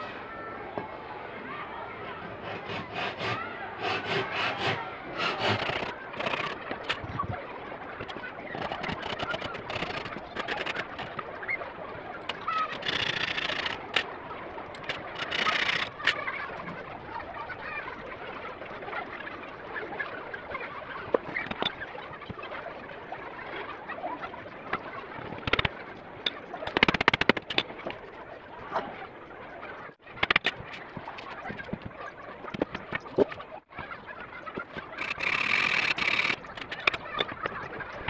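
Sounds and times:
rasping noises: 2.1 - 7.4, 8.0 - 11.3, 12.3 - 14.1, 14.7 - 16.2, 24.7 - 28.0, 34.5 - 38.0
wooden pieces knocking and clattering: 5.3 - 7.2, 8.0 - 11.3, 12.3 - 14.1, 14.7 - 16.2, 21.1 - 22.4, 24.7 - 28.0, 30.1 - 33.4, 34.5 - 38.0.

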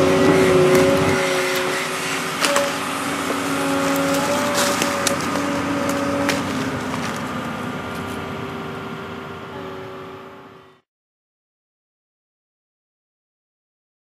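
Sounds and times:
excavator diesel engine running: 0.0 - 10.9
twigs snapping: 2.4 - 7.3.

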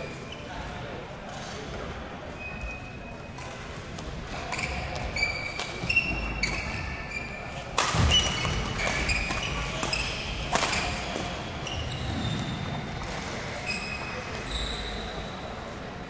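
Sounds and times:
shoes squeaking on court floor: 4.4 - 15.4
racket hitting shuttlecock: 7.8 - 11.4.

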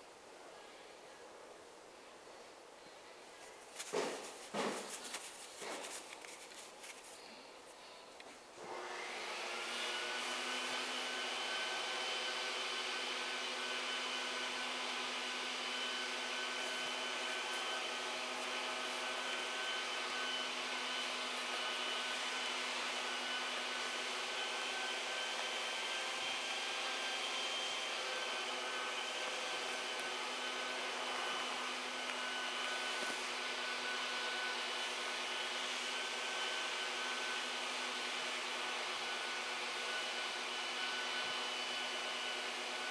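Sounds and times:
small electric blower motor running: 8.6 - 42.9.

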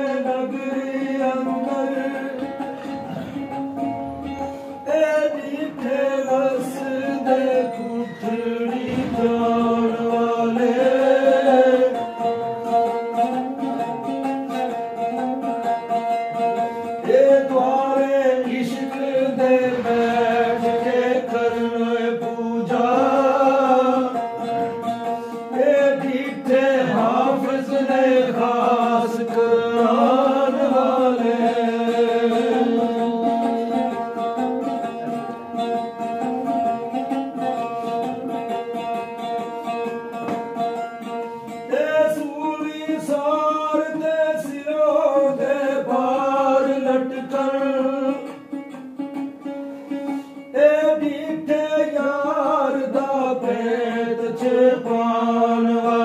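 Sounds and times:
person singing devotional poetry: 4.8 - 12.1, 17.0 - 24.3, 25.2 - 33.7, 41.7 - 48.2, 50.6 - 56.0.

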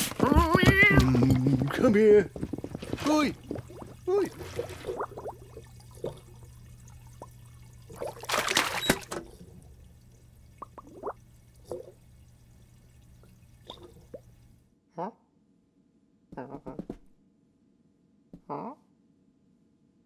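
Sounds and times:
water pouring and splashing: 0.0 - 14.6
bubbling plops: 0.8 - 14.6.

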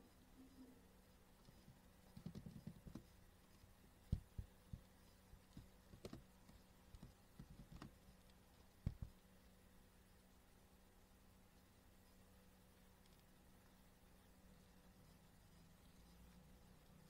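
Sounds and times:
faint low hum: 0.0 - 17.0
computer mouse and keyboard clicks: 1.4 - 3.1, 5.5 - 8.0.

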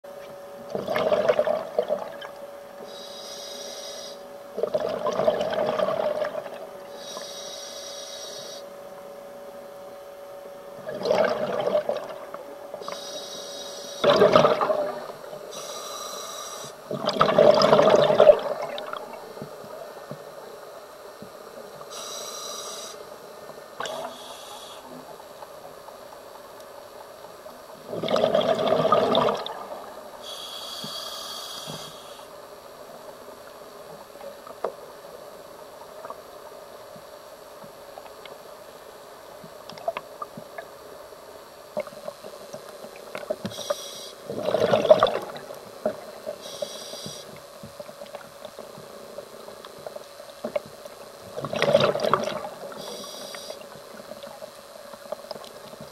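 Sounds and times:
steady low hum: 0.1 - 55.9
exhaled bubbles rushing: 0.7 - 2.2, 4.6 - 6.6, 10.8 - 12.3, 14.0 - 15.1, 16.9 - 19.2, 27.8 - 30.0, 44.3 - 45.6, 51.4 - 52.7
regulator inhale hiss: 2.8 - 4.3, 6.9 - 8.7, 12.8 - 14.1, 15.5 - 16.9, 21.9 - 23.1, 23.9 - 25.1, 30.2 - 32.4, 43.4 - 44.3, 46.3 - 47.4, 52.7 - 53.8.

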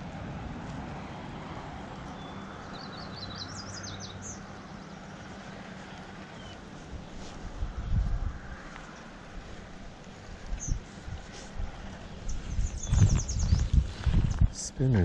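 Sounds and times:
distant engine droning: 0.0 - 15.0
low outdoor rumble: 0.0 - 15.0
small bird singing: 2.0 - 8.0, 10.5 - 10.9, 12.1 - 14.4.

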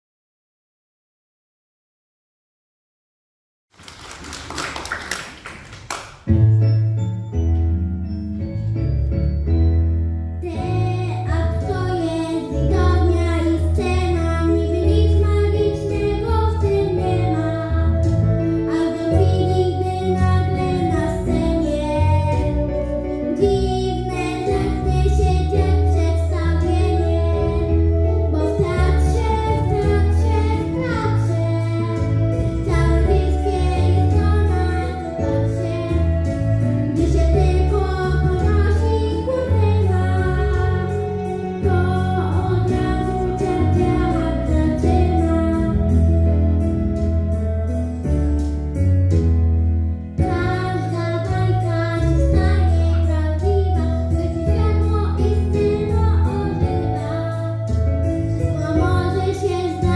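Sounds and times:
pop backing track: 6.1 - 59.9.

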